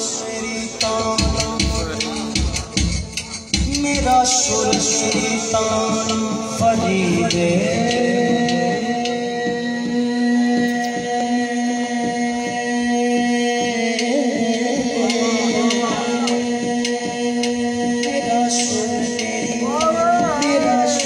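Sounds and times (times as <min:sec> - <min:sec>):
man singing into microphone: 0:00.0 - 0:21.0.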